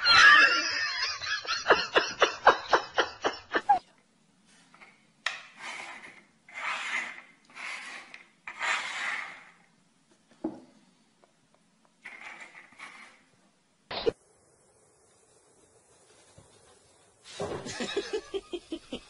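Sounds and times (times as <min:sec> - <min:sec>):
rasping scrapes: 0:05.5 - 0:09.7, 0:12.0 - 0:13.3.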